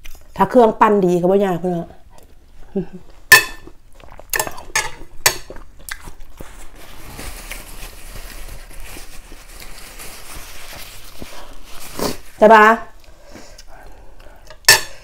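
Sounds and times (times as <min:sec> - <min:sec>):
paper tissue rustling: 0:06.3 - 0:12.7.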